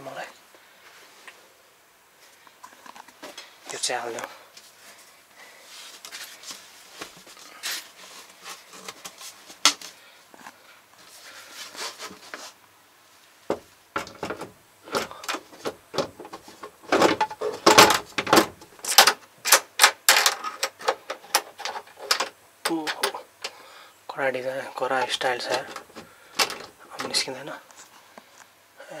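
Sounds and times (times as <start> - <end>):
plastic hatch catch clicks and rattles: 25.0 - 27.2.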